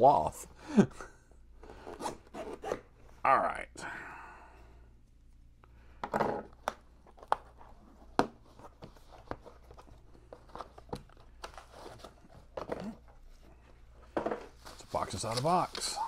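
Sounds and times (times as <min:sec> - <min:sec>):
cardboard and paper rustling: 0:07.1 - 0:16.0.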